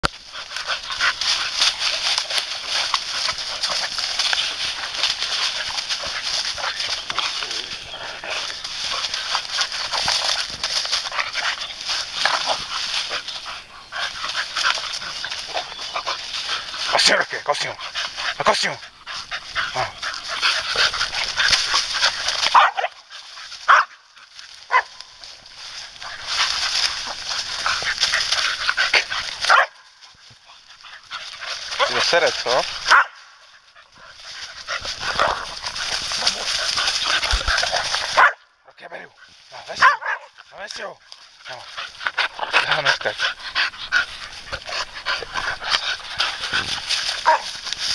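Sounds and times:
dry leaves crunching under dogs: 0.0 - 47.9
dog yelping: 19.7 - 23.0, 23.7 - 23.9, 24.7 - 25.0, 32.9 - 33.2, 38.2 - 38.4, 39.8 - 40.4, 47.2 - 47.5.

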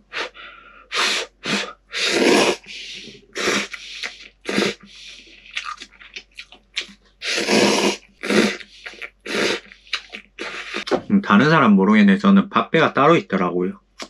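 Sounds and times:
man slurping noodles: 0.9 - 5.7, 7.2 - 10.9.

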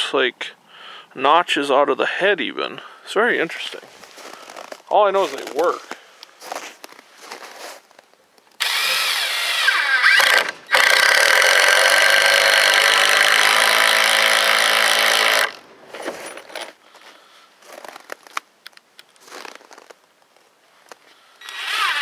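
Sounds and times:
cordless drill driving screw into wood: 8.6 - 15.6, 21.4 - 22.0.

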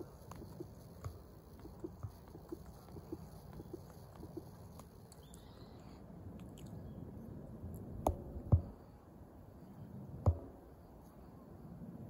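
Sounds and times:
outdoor background noise: 0.0 - 12.0
short dull thumps: 10.2 - 10.6.

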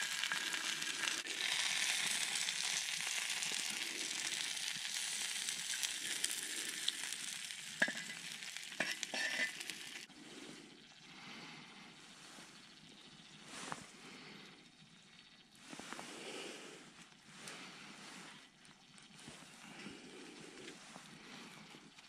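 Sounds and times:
onions sizzling in frying pan: 0.0 - 10.1
axe head scraping metal pan: 8.8 - 9.7.

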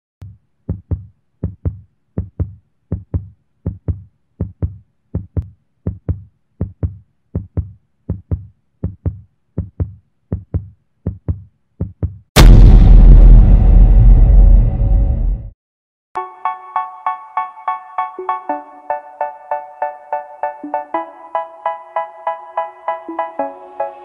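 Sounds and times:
heartbeat thumps: 0.2 - 12.7.

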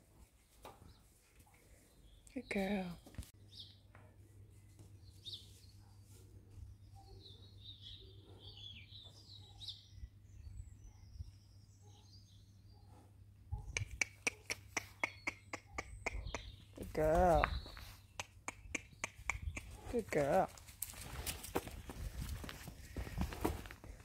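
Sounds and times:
faint birds chirping: 0.1 - 24.0
sharp clicks: 18.2 - 19.8.

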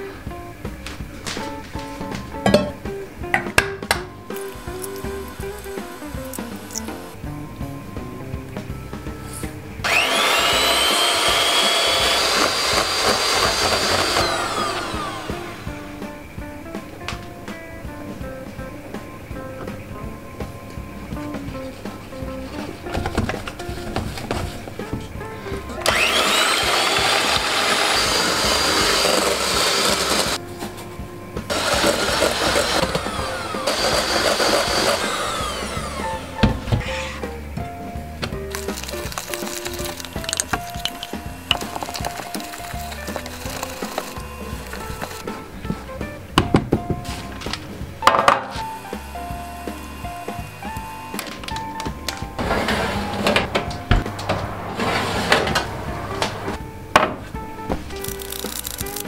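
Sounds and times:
electric hand mixer whine: 9.8 - 15.8, 25.8 - 30.4, 31.5 - 36.4, 38.5 - 45.2, 48.6 - 51.4.

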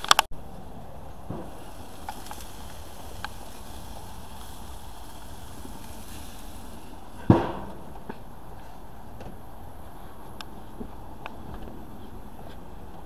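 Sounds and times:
gas grill hissing: 0.1 - 10.8
loud thump: 1.3 - 1.7, 7.2 - 8.2.

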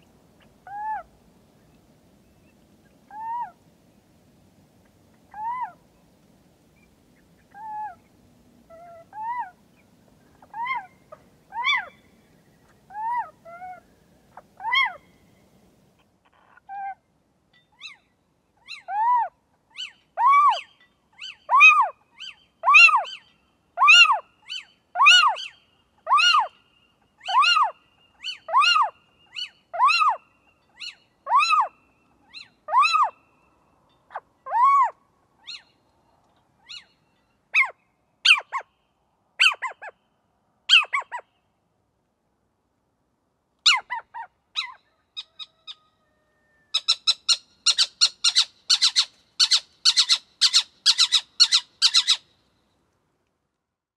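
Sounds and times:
owl calling: 0.4 - 1.1, 3.1 - 3.6, 5.3 - 5.8, 7.4 - 8.1, 8.7 - 9.6, 10.3 - 15.2, 18.6 - 26.6, 27.2 - 33.4, 34.1 - 35.8, 36.6 - 37.0, 37.6 - 38.7, 39.4 - 40.0, 40.7 - 41.3, 43.6 - 52.3.

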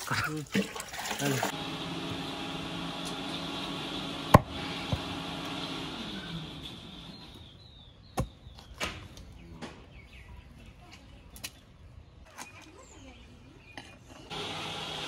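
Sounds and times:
cleaver chopping on wood: 4.3 - 5.1.

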